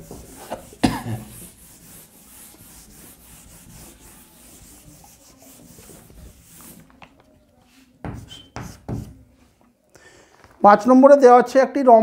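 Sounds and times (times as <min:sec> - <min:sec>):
scratchy rubbing on writing surface: 0:00.0 - 0:09.2.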